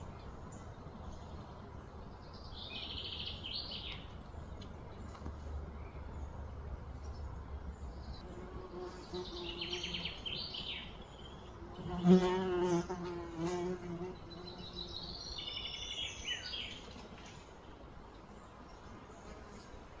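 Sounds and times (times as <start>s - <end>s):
flying insect buzzing: 11.6s - 14.8s.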